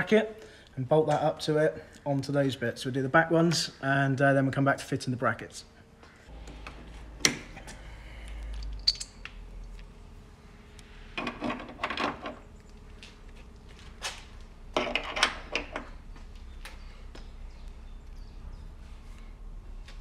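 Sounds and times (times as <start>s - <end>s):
small metal parts clinking: 8.4s - 9.8s.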